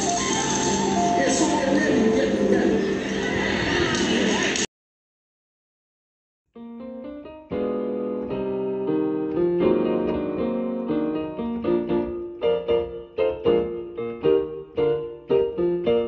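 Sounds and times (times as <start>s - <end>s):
piano music: 0.0s - 3.1s, 6.6s - 16.0s.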